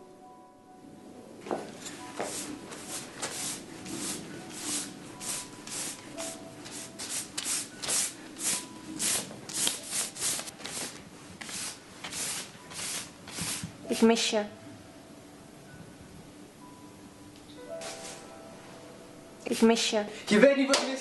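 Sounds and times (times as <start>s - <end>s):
paintbrush swishing on canvas: 2.2s - 13.8s, 17.8s - 18.3s.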